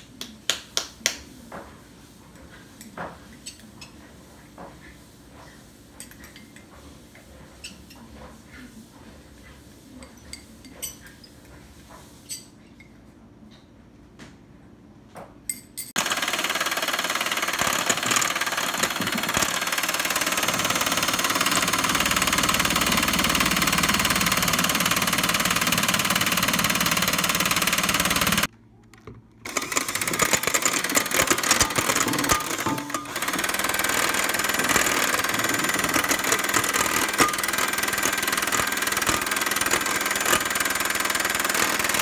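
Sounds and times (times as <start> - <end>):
electric mixer whipping: 16.0 - 28.5, 29.5 - 42.0.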